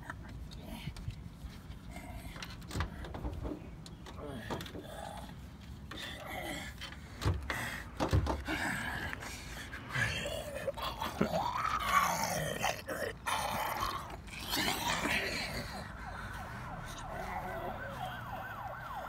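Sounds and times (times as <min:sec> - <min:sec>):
man groaning and grunting: 0:09.8 - 0:15.9.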